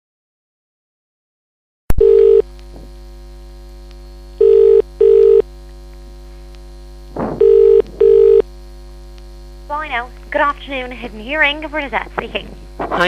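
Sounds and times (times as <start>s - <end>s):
telephone ringing tone: 1.9s - 2.4s, 4.4s - 5.5s, 7.4s - 8.4s
phone line click: 1.9s - 2.5s, 4.4s - 5.4s, 7.4s - 8.4s
phone line hum: 1.9s - 12.7s.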